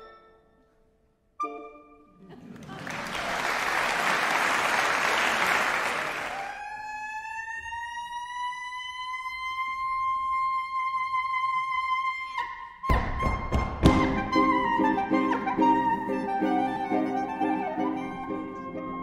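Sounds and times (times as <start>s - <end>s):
audience applause: 2.3s - 6.6s.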